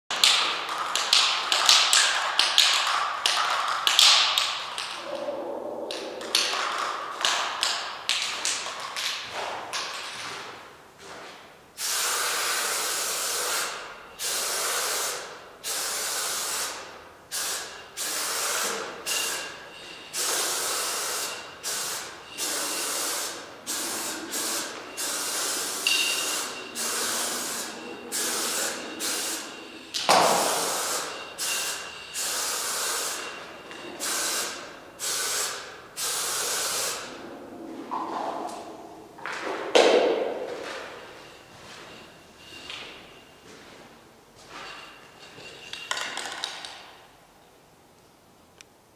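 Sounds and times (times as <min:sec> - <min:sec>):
spray can hissing: 0:11.8 - 0:19.5, 0:20.2 - 0:29.5, 0:30.2 - 0:33.2, 0:34.0 - 0:37.1.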